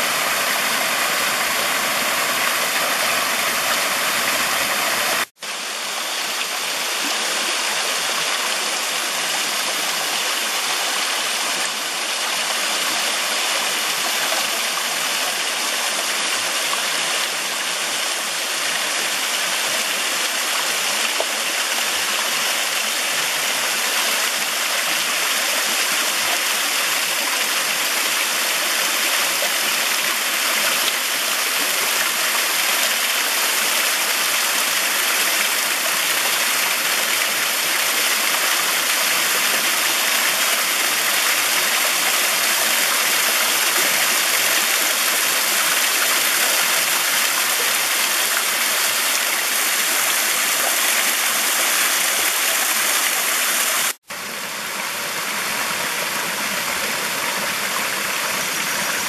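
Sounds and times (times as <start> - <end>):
small waterfall rushing: 0.0 - 59.0.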